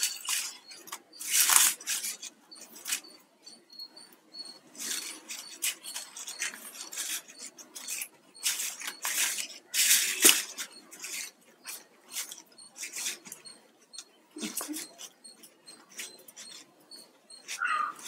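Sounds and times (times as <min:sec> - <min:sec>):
plastic wire strands squeaking: 0:00.0 - 0:18.0.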